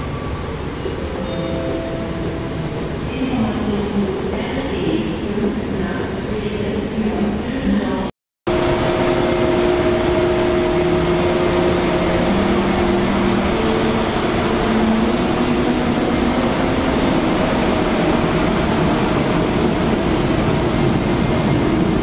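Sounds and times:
electric train running: 8.5s - 18.4s.

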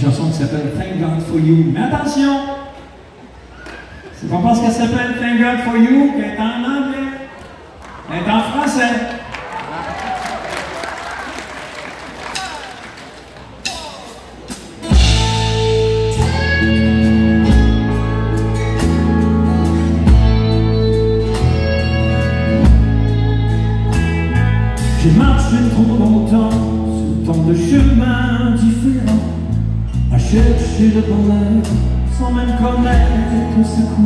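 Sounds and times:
country band playing: 12.3s - 34.0s
lead melody: 14.9s - 34.0s.

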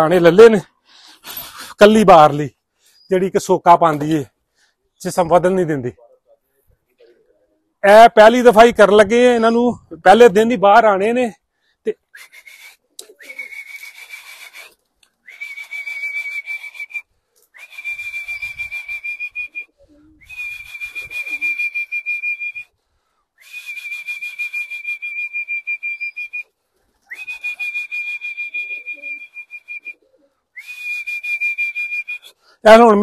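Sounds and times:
trilling whistle blasts: 12.2s - 14.7s, 15.3s - 17.0s, 17.6s - 19.6s, 20.2s - 22.7s, 23.4s - 26.4s, 27.1s - 30.0s, 30.6s - 32.3s.

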